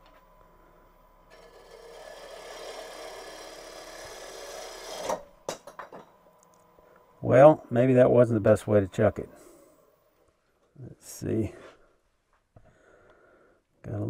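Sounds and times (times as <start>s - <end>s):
gouge cutting wood on a lathe: 1.2s - 5.5s.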